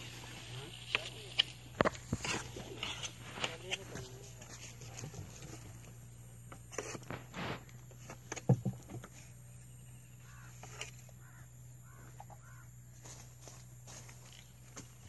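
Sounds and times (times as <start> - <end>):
crows cawing: 10.2 - 13.2.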